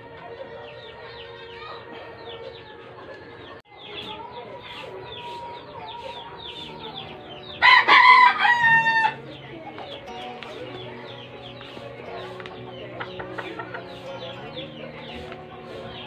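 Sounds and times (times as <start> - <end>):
rooster crowing: 7.6 - 9.2.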